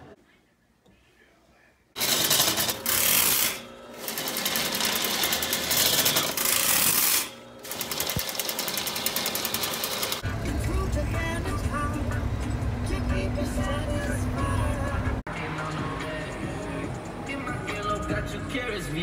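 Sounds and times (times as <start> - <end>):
road rumble: 10.2 - 18.0
music: 10.2 - 19.0.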